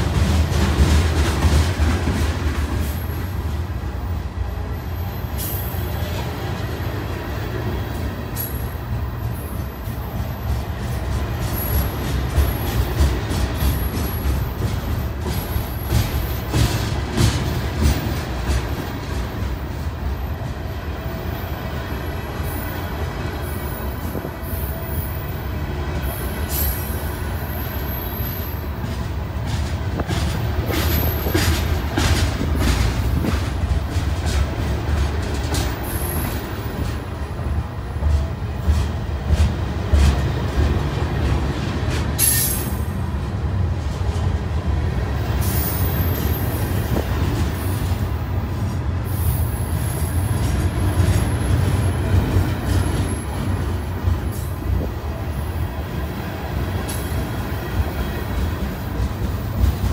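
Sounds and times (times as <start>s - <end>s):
freight train wheels rumbling on rail: 0.0s - 59.9s
wheels clacking over rail joints: 10.4s - 20.6s, 28.2s - 59.9s
high wheel squeals: 45.4s - 47.0s.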